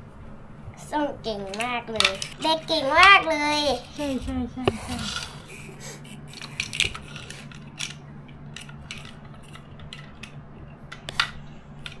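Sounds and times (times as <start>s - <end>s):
faint low hum: 0.0s - 12.0s
toy trains clicking and clattering: 1.3s - 4.2s, 6.3s - 12.0s.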